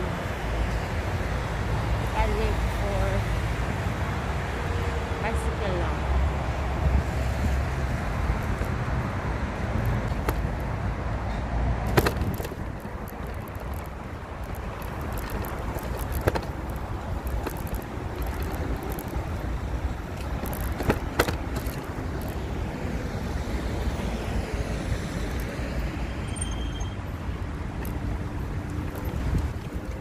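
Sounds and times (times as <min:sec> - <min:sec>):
wind and road noise: 0:00.0 - 0:30.0
sharp clicks: 0:11.9 - 0:22.4.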